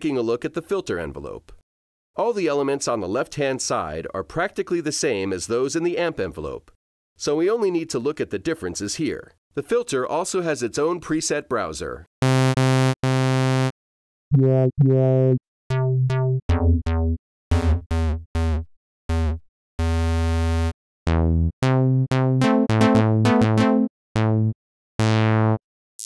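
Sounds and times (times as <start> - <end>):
sawtooth synth notes: 12.2 - 13.7, 14.3 - 25.6.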